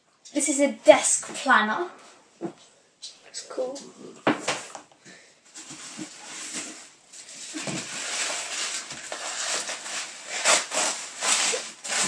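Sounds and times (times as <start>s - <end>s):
wrapping paper rustling and tearing: 5.6s - 12.0s.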